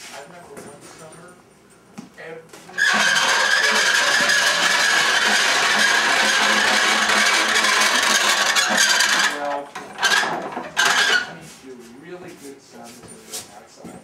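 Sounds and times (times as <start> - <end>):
pasta machine rollers squealing: 2.7 - 11.5.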